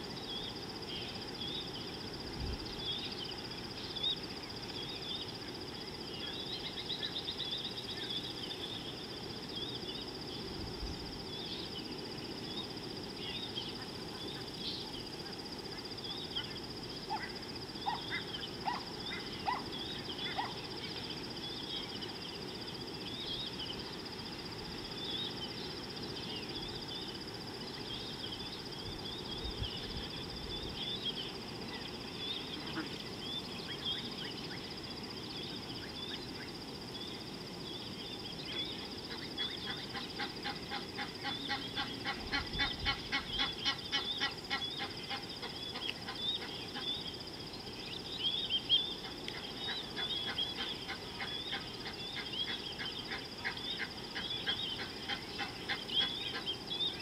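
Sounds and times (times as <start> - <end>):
low background hiss: 0.0 - 57.0
birds chirping: 11.3 - 24.0, 25.0 - 57.0
low bird calls: 16.1 - 22.2.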